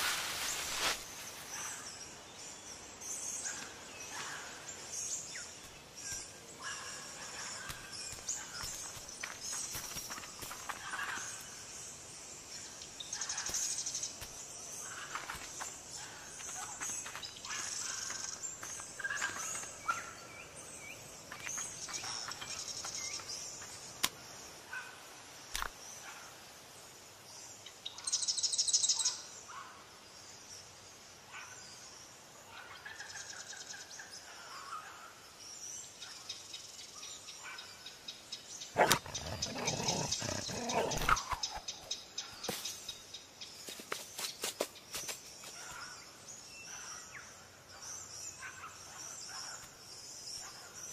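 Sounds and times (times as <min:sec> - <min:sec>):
steady high hiss: 0:00.0 - 0:16.0
birds chirping: 0:00.0 - 0:24.4, 0:38.4 - 0:50.9.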